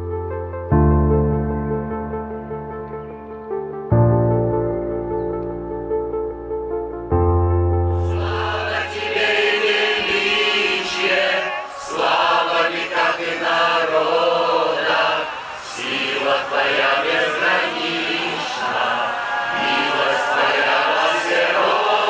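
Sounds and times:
congregation singing a hymn: 0:08.0 - 0:22.0.

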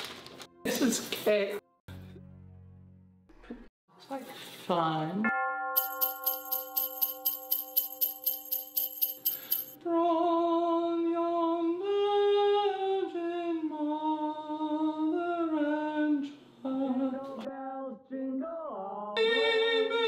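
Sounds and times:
woman singing wordless tune: 0:09.8 - 0:20.0.

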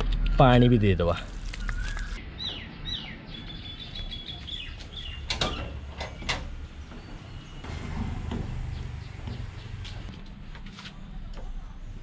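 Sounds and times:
birds chirping: 0:01.3 - 0:07.7, 0:08.4 - 0:10.1.

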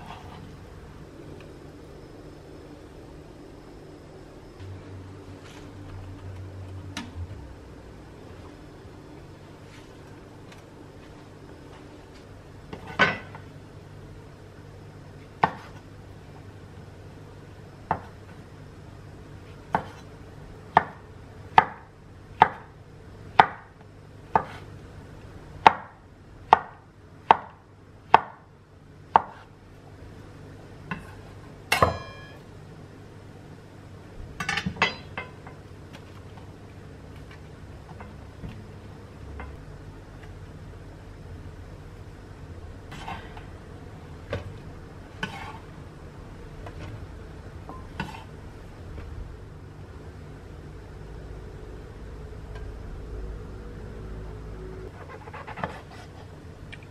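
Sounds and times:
knife chopping on wooden board: 0:15.4 - 0:15.8, 0:24.3 - 0:24.6, 0:29.1 - 0:29.5.

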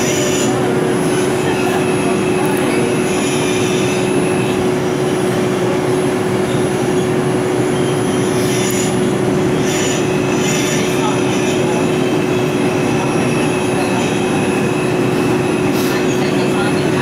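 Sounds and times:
subway wheels rumbling on rail: 0:00.0 - 0:17.0.

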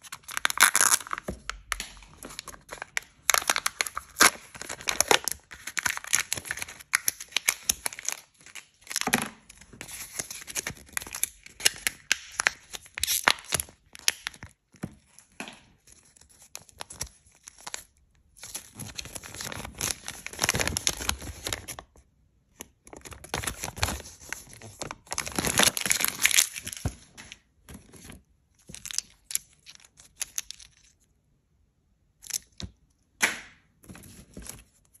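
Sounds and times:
foil crinkling and tearing: 0:00.0 - 0:01.2, 0:02.0 - 0:09.1, 0:22.9 - 0:26.9.

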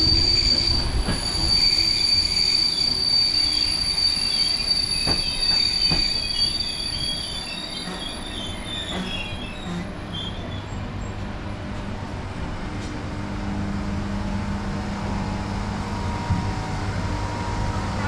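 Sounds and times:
train wheels squealing: 0:00.0 - 0:11.2
train rumbling: 0:00.0 - 0:18.0.

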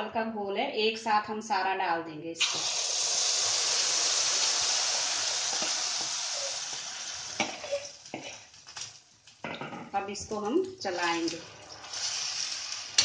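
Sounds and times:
batter sizzling in hot oil: 0:02.4 - 0:09.4, 0:10.8 - 0:13.0.

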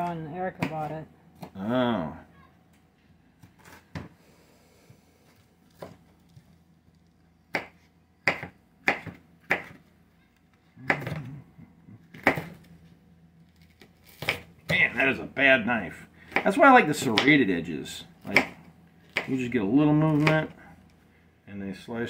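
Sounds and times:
knife chopping on plastic board: 0:07.5 - 0:09.8, 0:12.1 - 0:12.6, 0:18.2 - 0:19.4, 0:20.1 - 0:20.5.

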